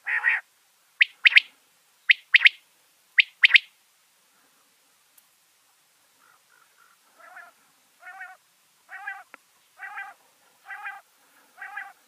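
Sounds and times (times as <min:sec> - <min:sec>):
quail warbling calls: 0:00.0 - 0:00.4, 0:01.0 - 0:01.5, 0:02.1 - 0:02.6, 0:03.2 - 0:03.7, 0:06.2 - 0:12.0.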